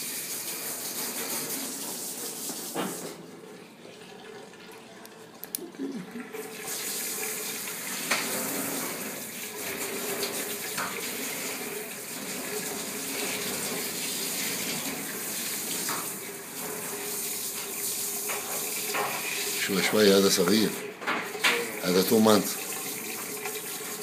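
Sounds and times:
water spraying into a sink: 0.0s - 3.3s, 6.2s - 24.0s.

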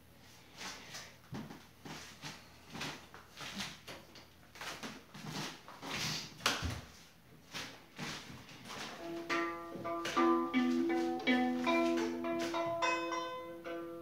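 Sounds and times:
rustling and handling noise: 0.2s - 13.0s
violin strings plucked: 9.0s - 14.0s.

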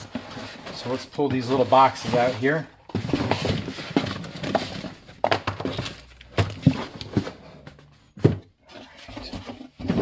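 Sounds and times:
cardboard knocks and scrapes: 0.0s - 10.0s.

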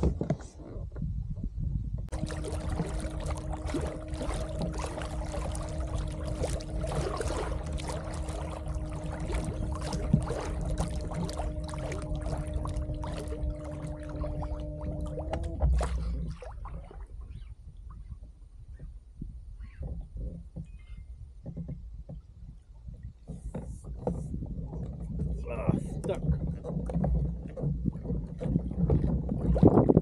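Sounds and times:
steady low hum: 2.0s - 18.1s
water trickling and splashing: 2.1s - 18.3s, 21.4s - 30.0s.

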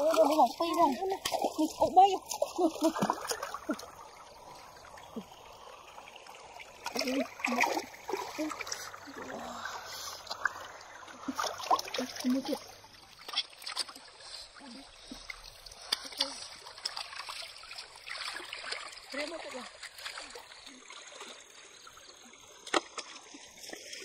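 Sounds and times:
stream trickling: 0.0s - 24.0s.

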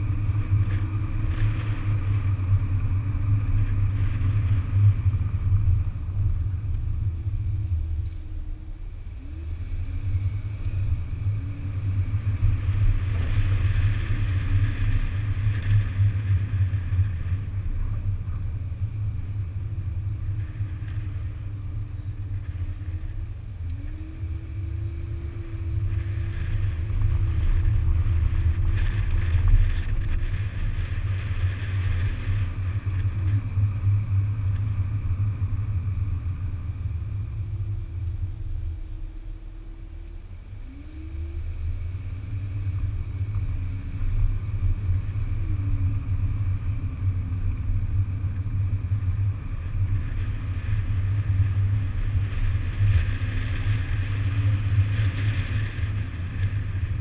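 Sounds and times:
road and wind noise: 0.0s - 57.0s.

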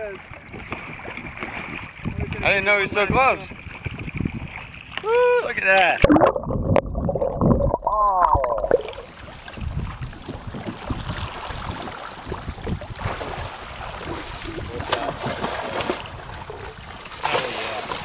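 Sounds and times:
water slapping against kayak: 0.0s - 7.2s, 8.6s - 18.0s
wind buffeting microphone: 0.0s - 17.2s.

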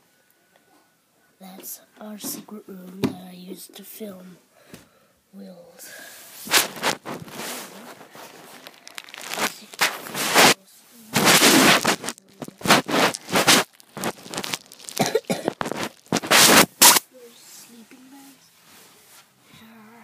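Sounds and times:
rustling and crinkling: 6.3s - 19.4s.

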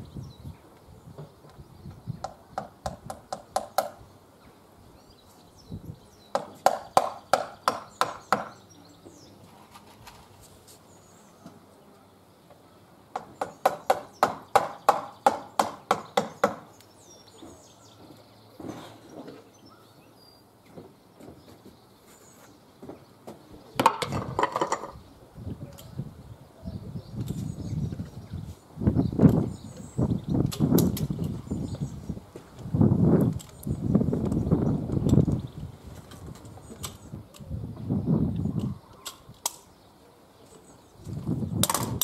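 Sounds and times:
hammer knocking nails: 2.2s - 4.0s, 6.3s - 8.6s, 13.2s - 16.7s.

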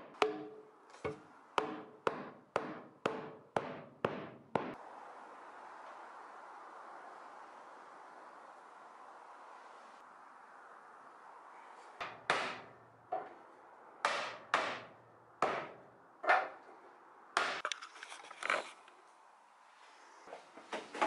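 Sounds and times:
sharp wooden knocks: 0.0s - 4.8s, 12.0s - 13.3s, 14.0s - 16.5s.

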